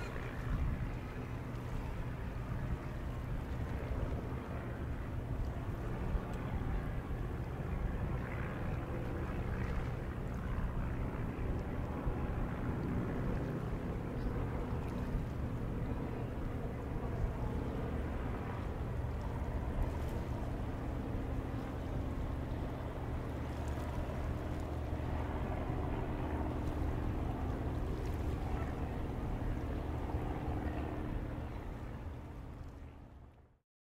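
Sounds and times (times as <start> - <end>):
boat engine droning: 0.0 - 33.6.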